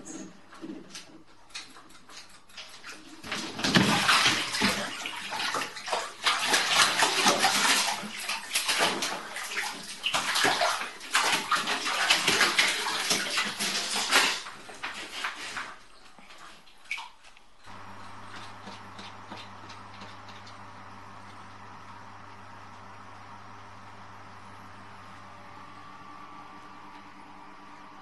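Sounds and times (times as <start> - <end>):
cat splashing in water: 1.5 - 21.0.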